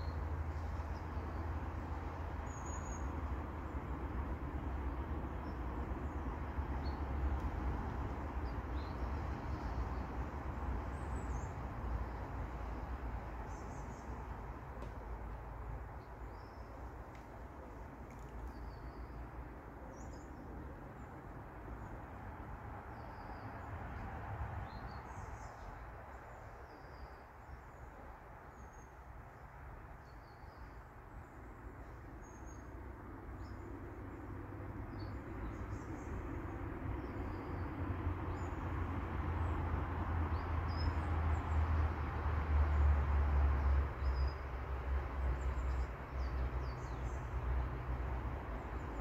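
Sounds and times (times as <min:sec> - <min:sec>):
steady outdoor hiss: 0:00.0 - 0:49.0
small birds chirping: 0:08.3 - 0:22.0, 0:22.9 - 0:29.0, 0:45.4 - 0:47.4.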